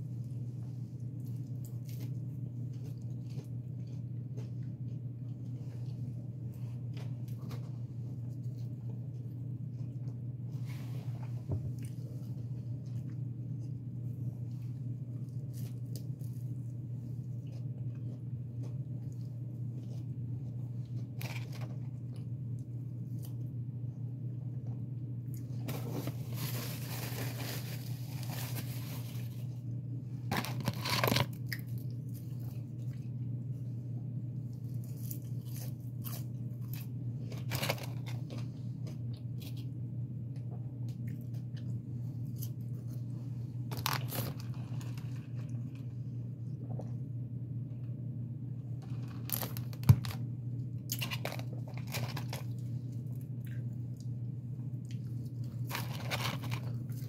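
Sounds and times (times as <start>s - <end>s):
steady low hum: 0.0s - 57.0s
chewing: 1.0s - 6.2s, 50.9s - 54.2s
paper wrappers rustling: 25.7s - 29.5s, 30.3s - 31.4s, 37.4s - 38.4s, 43.7s - 45.5s, 51.0s - 52.6s, 55.6s - 57.0s.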